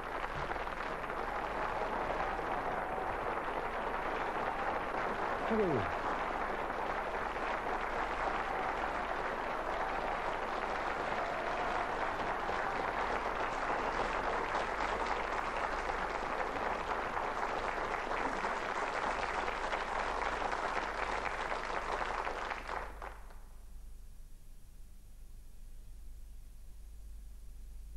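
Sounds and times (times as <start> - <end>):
audience applauding: 0.0 - 23.4
faint low hum: 22.8 - 27.9.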